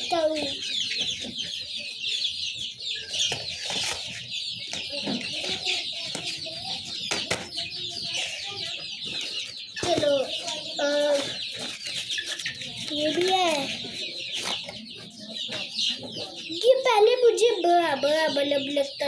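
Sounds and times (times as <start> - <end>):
chickens clucking: 0.0 - 19.0
chicks peeping and chirping: 0.0 - 19.0.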